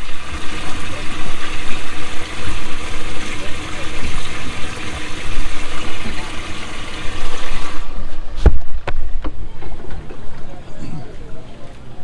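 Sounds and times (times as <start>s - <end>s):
water churning and splashing: 0.0s - 8.1s.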